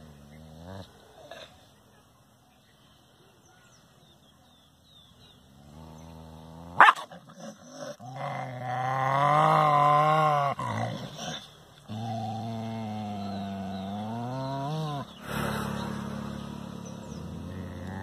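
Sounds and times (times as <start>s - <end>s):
dog growling: 0.0s - 1.6s, 5.6s - 18.0s
dog barking: 6.8s - 7.1s.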